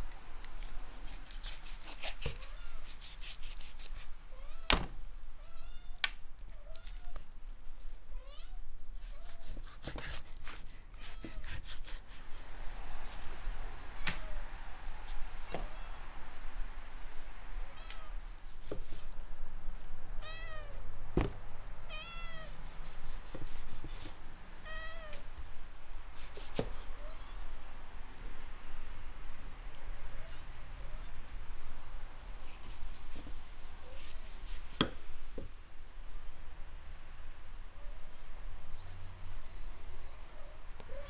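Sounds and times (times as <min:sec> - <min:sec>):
cat meowing: 0:02.4 - 0:02.8, 0:04.3 - 0:04.8, 0:08.1 - 0:09.4, 0:17.8 - 0:18.2, 0:20.2 - 0:20.8, 0:21.9 - 0:22.5, 0:24.6 - 0:25.2
cleaver chopping meat and bone: 0:34.7 - 0:35.0.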